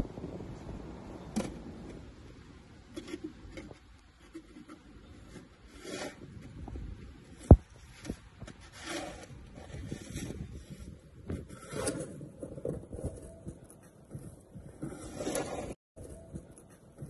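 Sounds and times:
soft scraping and rubbing: 2.9 - 13.5, 14.2 - 16.7.

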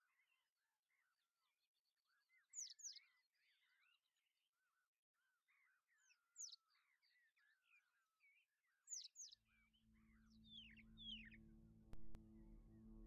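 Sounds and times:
small birds chirping and twittering: 0.0 - 11.5
low background music: 9.9 - 13.0.

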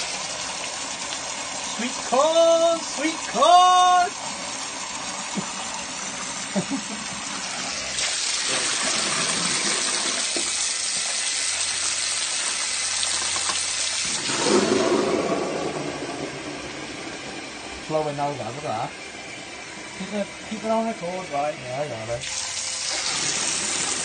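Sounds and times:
water splashing into a drain: 0.0 - 3.4, 7.4 - 17.2, 22.2 - 24.0.

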